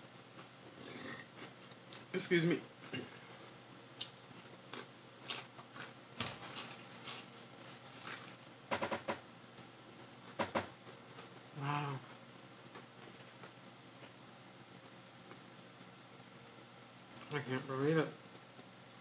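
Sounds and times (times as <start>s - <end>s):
person making brief voiced sounds: 11.6s - 12.0s.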